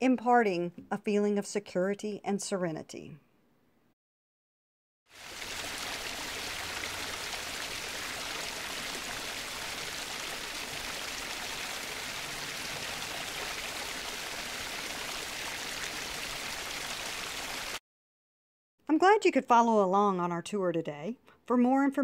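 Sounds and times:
stream babbling: 5.2s - 17.8s.

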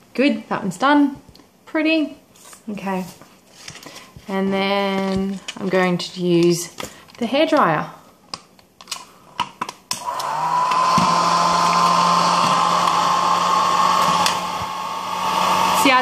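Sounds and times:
hair dryer running: 10.0s - 16.0s.

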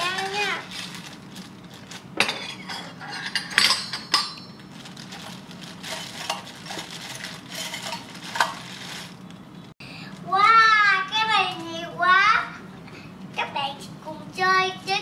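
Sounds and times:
plastic bag crinkling: 0.0s - 2.2s, 4.5s - 9.6s
metal pots clinking: 2.2s - 4.7s, 5.8s - 6.9s, 7.5s - 8.7s.

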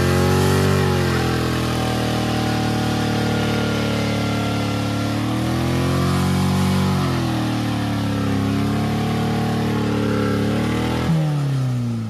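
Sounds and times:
wheel spinning in mud: 0.0s - 11.1s
car engine revving hard: 0.0s - 12.0s.

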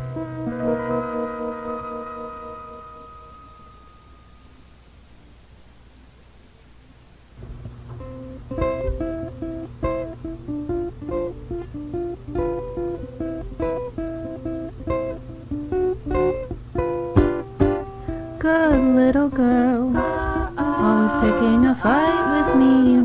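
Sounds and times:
acoustic guitar picking: 0.0s - 4.1s, 7.4s - 23.0s
person singing: 18.0s - 23.0s.

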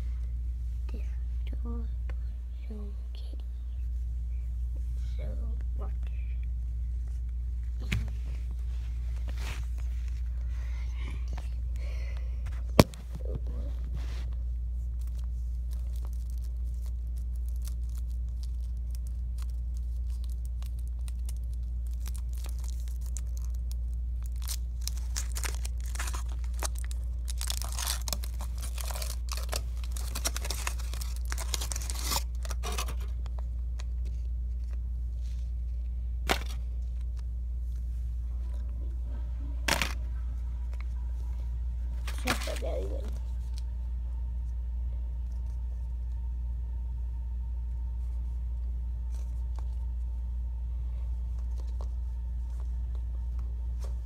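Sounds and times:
steady low hum: 0.0s - 54.0s
wrapper crinkling and tearing: 14.9s - 33.2s, 42.0s - 43.7s.

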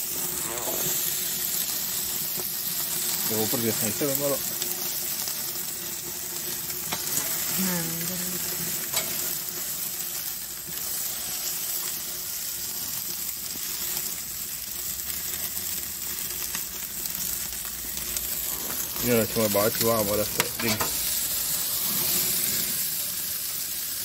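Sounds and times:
chicken wings sizzling on grill: 0.0s - 24.0s.

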